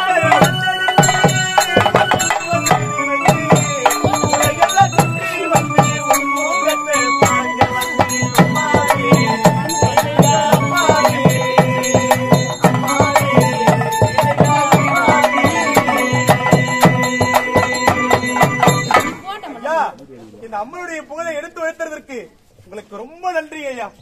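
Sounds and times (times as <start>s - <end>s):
rapid drum strokes: 0.0s - 19.3s
steady held tone: 0.0s - 19.4s
wavering melody: 0.0s - 19.4s.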